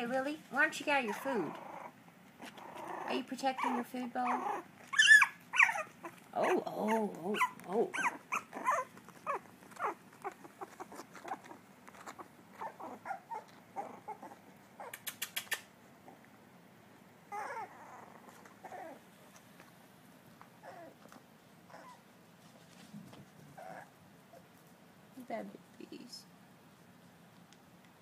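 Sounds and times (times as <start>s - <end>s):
puppies yipping and whimpering: 1.0s - 15.0s, 17.3s - 19.1s, 20.6s - 21.0s, 21.7s - 22.1s
quick clicks: 14.9s - 15.7s.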